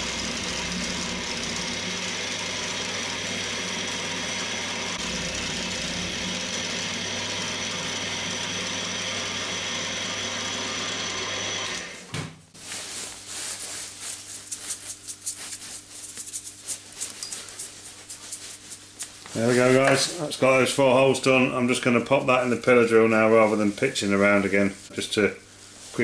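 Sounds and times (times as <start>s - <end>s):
mill spindle motor drilling: 0.0s - 12.1s
brush sweeping metal chips: 12.6s - 19.8s.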